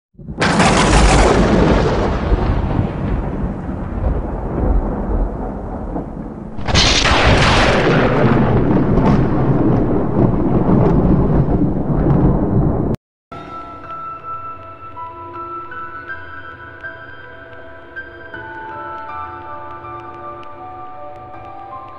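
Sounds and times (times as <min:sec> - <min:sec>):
deep booming rumble: 0:00.2 - 0:13.0.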